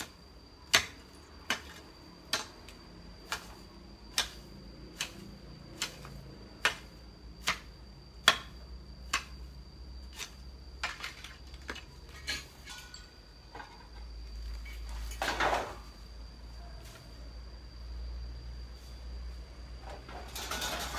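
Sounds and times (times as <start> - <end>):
hoe chopping into ground: 0.0 - 9.5.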